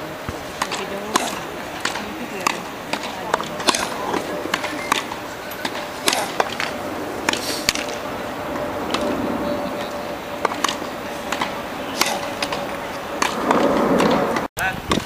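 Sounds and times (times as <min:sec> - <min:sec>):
low voices: 0:00.0 - 0:14.9
tennis balls struck by racquets: 0:00.0 - 0:15.0.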